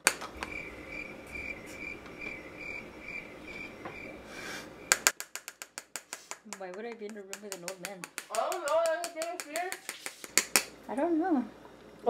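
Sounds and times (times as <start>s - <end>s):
cricket chirping: 0.1s - 5.2s.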